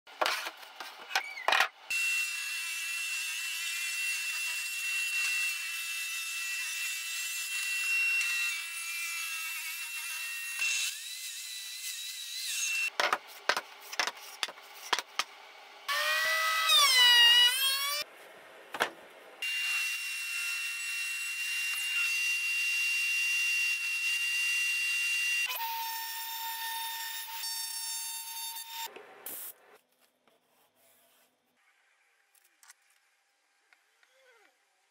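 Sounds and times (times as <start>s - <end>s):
power saw cutting wood: 1.9s - 12.9s.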